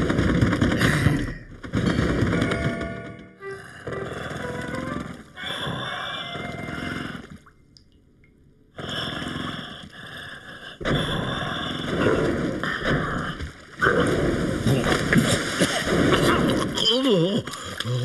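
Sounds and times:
gurgling snorkel breaths: 0:03.4 - 0:07.6, 0:08.8 - 0:16.1.

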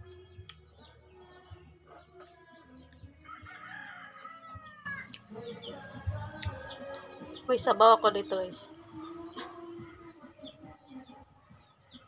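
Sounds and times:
small birds chirping: 0:00.0 - 0:12.0
rooster crowing: 0:03.3 - 0:05.2.

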